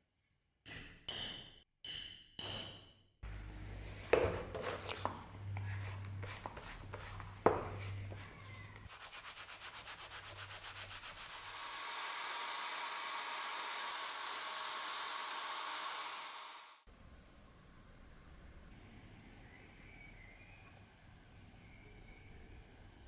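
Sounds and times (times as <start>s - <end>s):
drill motor whine: 11.5s - 16.8s.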